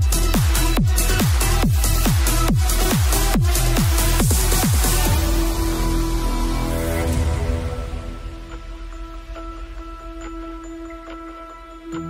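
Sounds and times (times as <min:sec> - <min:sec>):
electronic dance music: 0:00.0 - 0:09.3.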